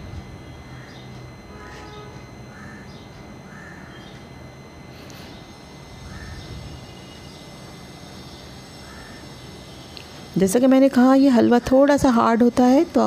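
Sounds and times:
low background hum: 0.0 - 13.0
bird calls: 0.5 - 4.3, 5.2 - 7.6, 8.2 - 10.0.

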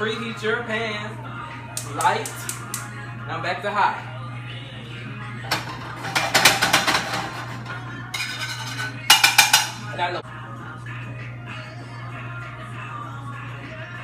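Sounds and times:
background music: 0.0 - 14.0
frying pan and utensils clattering: 5.5 - 9.9.

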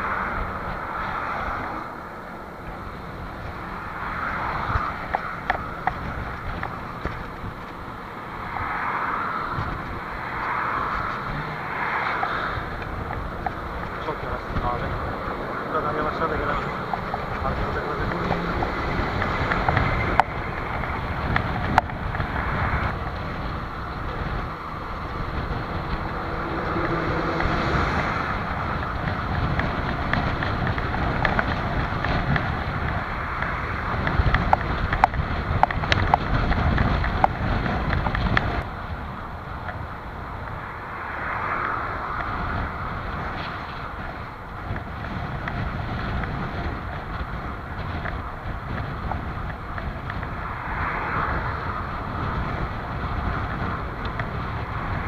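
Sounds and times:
wind rushing over microphone: 0.0 - 55.0
sharp clicks and knocks: 25.1 - 38.7.

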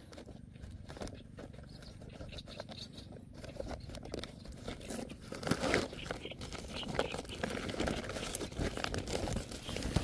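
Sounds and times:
plastic bag crinkling: 3.6 - 10.0.

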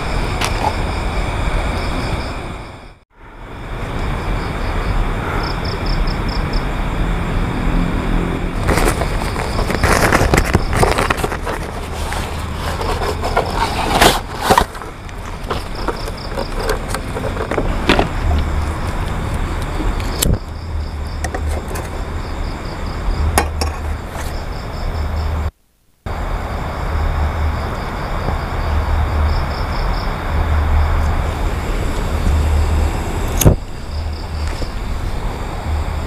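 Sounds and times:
camping gear knocking and clattering: 8.6 - 20.4, 21.0 - 22.1, 23.3 - 24.4
steady low rumble: 26.1 - 36.0.

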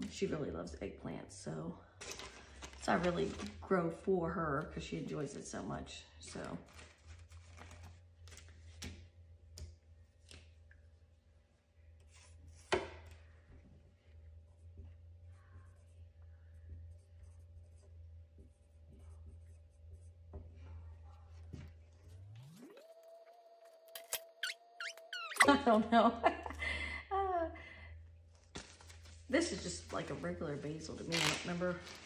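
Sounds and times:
steady low hum: 0.0 - 32.0
marker scratching on label: 23.9 - 25.5.

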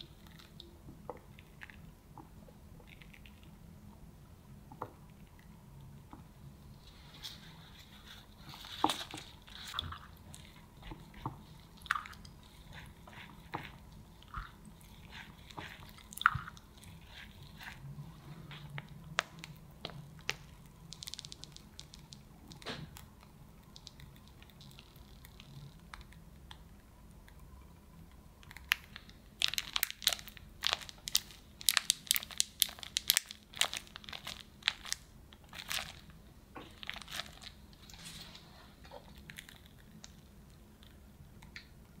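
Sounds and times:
plastic piping bag crinkling: 7.0 - 26.2, 28.4 - 41.0.

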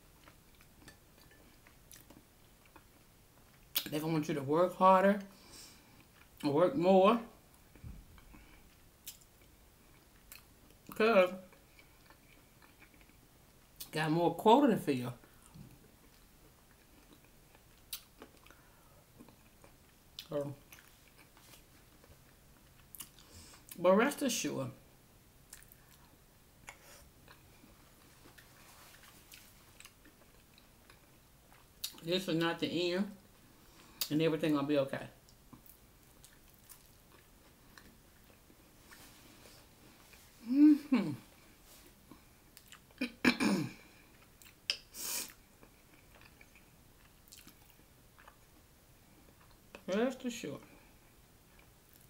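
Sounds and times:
faint chewing: 0.0 - 3.9, 7.5 - 14.0, 15.2 - 23.8, 25.4 - 32.1, 35.2 - 43.1, 43.8 - 49.9, 50.7 - 52.0
wet mouth clicks: 44.4 - 45.4.

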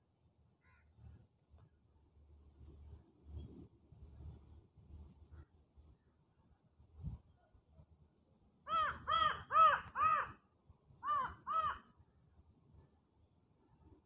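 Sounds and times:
crow cawing: 0.6 - 0.9, 8.7 - 10.4, 11.0 - 11.9.

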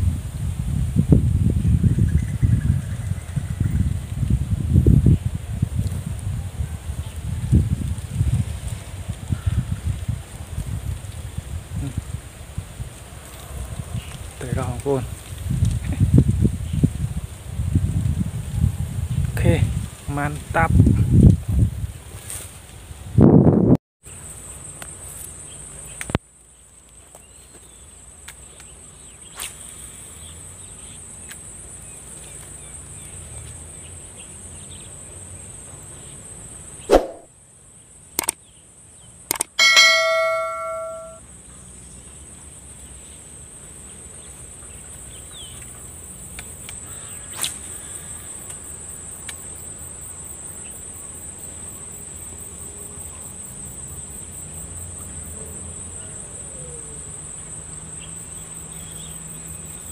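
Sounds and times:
high-pitched insect chorus: 24.1 - 59.9
sharp clicks: 38.2 - 38.4, 39.3 - 39.6
bell-like ding: 39.6 - 41.2.

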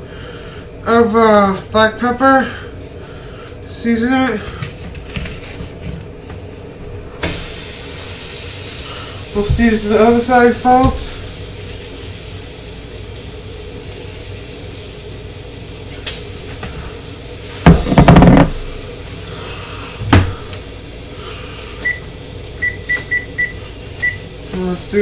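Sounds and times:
steak sizzling in a pan: 7.2 - 25.0
kitchen clatter: 17.6 - 18.8
loud knocks and bangs: 17.7 - 18.7.

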